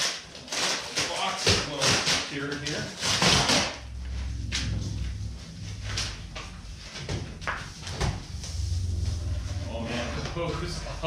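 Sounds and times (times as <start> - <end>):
steady low hum: 3.6 - 11.0.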